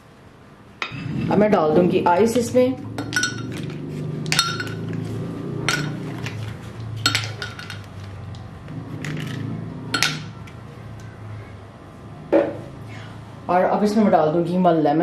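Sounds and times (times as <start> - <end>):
low steady hum: 0.0 - 15.0
ice cubes clinking into glass jar: 7.0 - 8.0.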